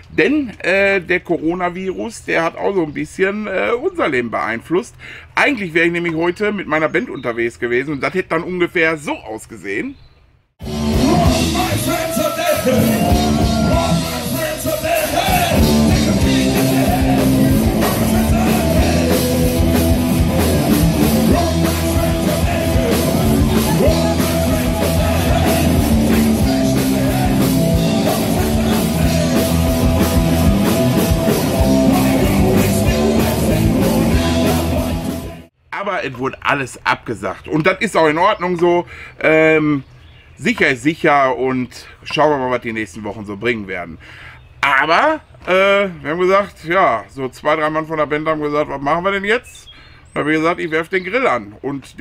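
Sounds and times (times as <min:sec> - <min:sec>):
live rock band playing: 0:10.6 - 0:35.5
man singing: 0:10.9 - 0:35.5.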